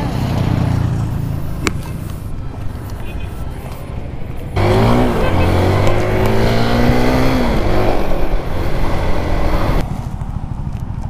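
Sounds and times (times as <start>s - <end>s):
motorcycle engine revving high: 4.6s - 9.8s.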